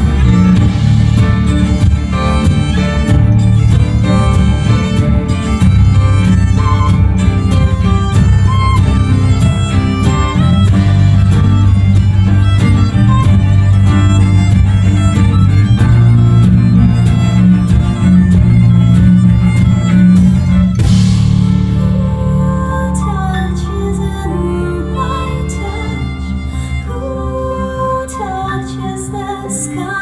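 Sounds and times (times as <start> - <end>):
steady drum beat: 0.0 - 22.0
bass guitar: 0.0 - 30.0
cello: 0.0 - 30.0
keyboard: 0.0 - 30.0
violin leading melody: 0.0 - 30.0.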